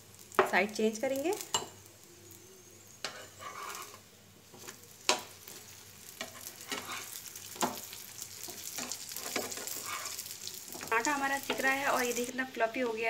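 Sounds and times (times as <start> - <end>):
oil sizzling: 0.0 - 13.0
metal spatula scraping on griddle: 2.8 - 10.9.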